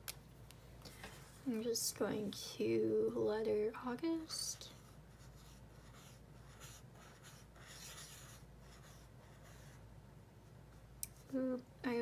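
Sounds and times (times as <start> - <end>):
highlighter scratching on paper: 4.3 - 9.8.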